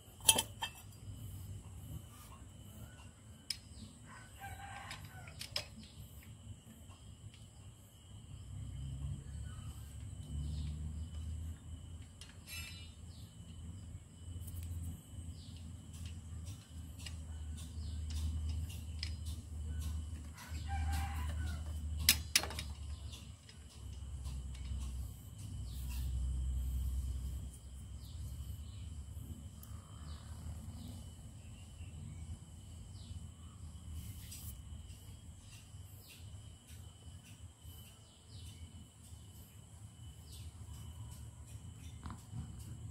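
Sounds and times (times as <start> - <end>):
rooster crowing: 4.0 - 5.4, 20.3 - 22.1.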